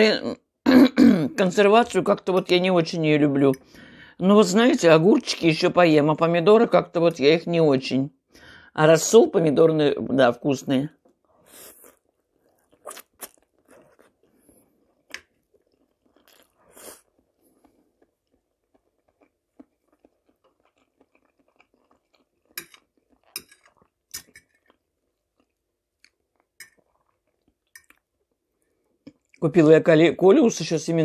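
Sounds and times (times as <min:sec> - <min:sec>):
quiet chewing with mouth clicks: 0:11.0 - 0:29.4.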